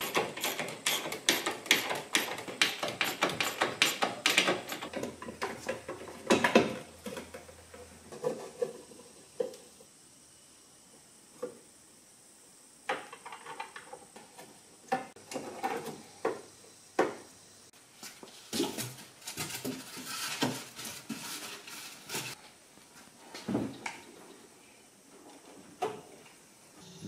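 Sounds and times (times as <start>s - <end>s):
clicks and knocks of metal and plastic: 0.0s - 8.8s.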